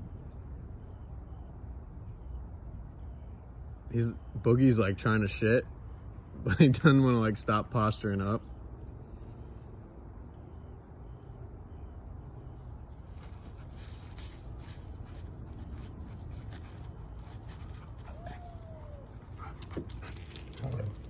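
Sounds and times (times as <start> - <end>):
dogs scuffling on grass: 12.6 - 21.0
dog whining: 17.8 - 19.8.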